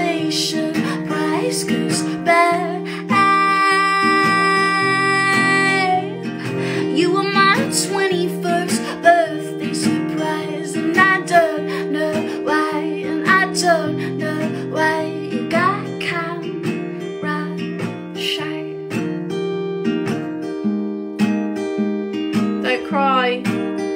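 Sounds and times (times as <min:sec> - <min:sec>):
woman singing: 0:00.0 - 0:18.9, 0:22.6 - 0:23.5
strummed acoustic guitar: 0:00.0 - 0:23.9.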